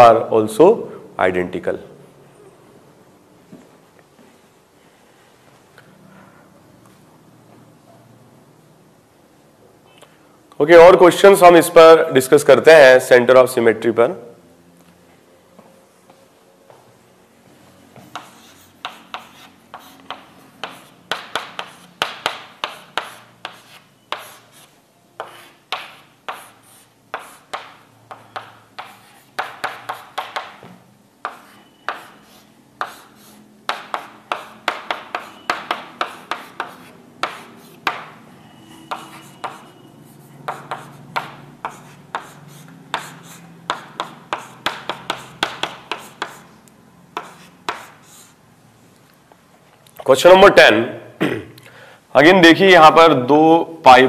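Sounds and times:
pen clicks and scratchy strokes: 18.0s - 30.5s.

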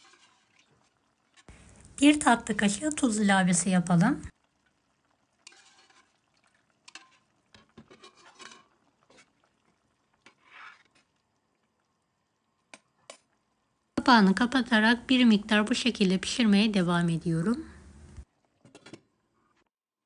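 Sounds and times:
stew being stirred: 0.0s - 3.7s, 4.3s - 13.5s.

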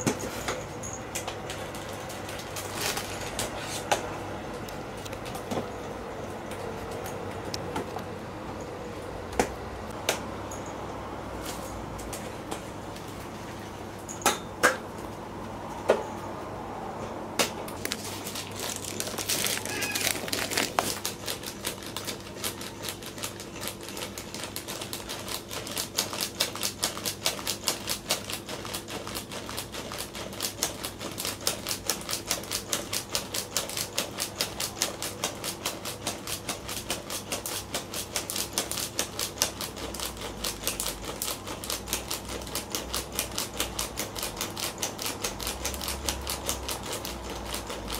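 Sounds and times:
plastic bag rustle: 1.6s - 3.9s, 17.8s - 23.5s
motorized toy clicking rapidly: 18.6s - 47.9s.

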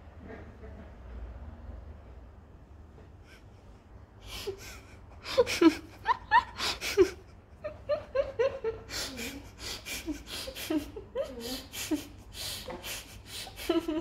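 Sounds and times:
person giggling: 4.4s - 14.0s.

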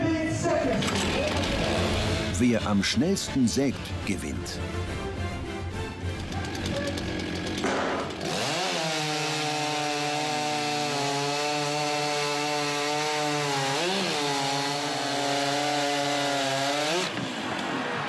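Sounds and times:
chainsaws cutting log: 0.7s - 2.8s, 6.0s - 17.9s.

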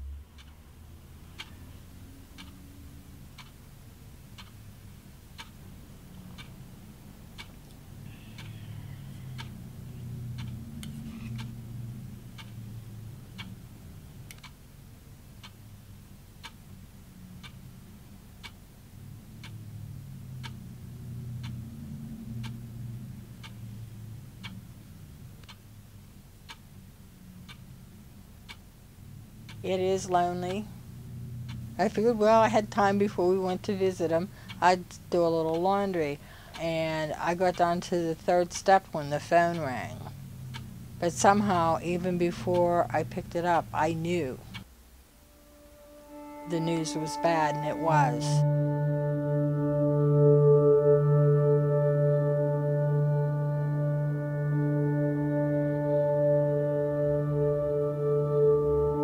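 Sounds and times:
clock ticking: 0.0s - 2.7s, 3.3s - 3.7s, 4.3s - 4.6s, 5.3s - 6.7s, 7.3s - 7.8s, 8.4s - 8.6s, 9.3s - 13.6s, 14.2s - 14.6s, 15.4s - 15.7s, 16.4s - 16.7s, 17.4s - 17.7s, 18.4s - 18.6s, 20.3s - 21.8s, 22.4s - 22.8s, 28.4s - 28.8s, 29.4s - 44.9s, 45.6s - 48.5s
low hum: 0.0s - 4.2s, 5.7s - 15.0s, 16.8s - 25.4s, 26.8s - 34.5s, 39.3s - 59.0s.

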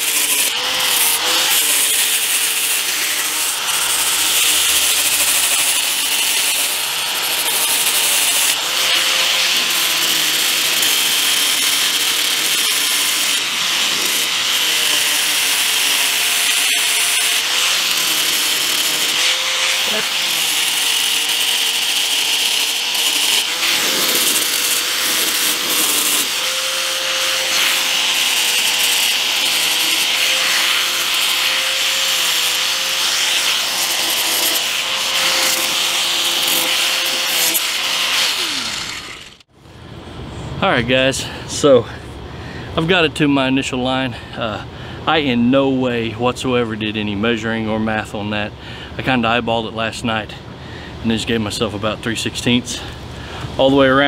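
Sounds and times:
sanding rasp on plastic: 0.0s - 39.1s
angle grinder motor whine: 0.0s - 39.5s.

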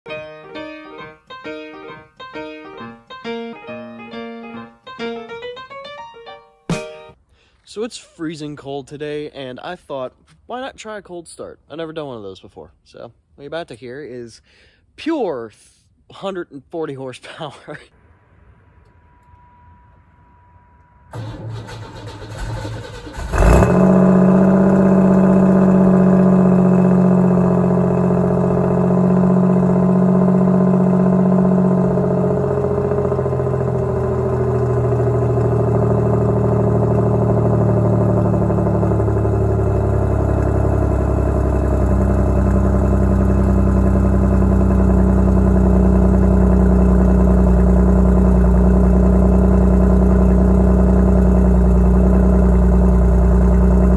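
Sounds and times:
car starter cranking: 21.1s - 27.3s
car engine idling: 21.1s - 53.9s.

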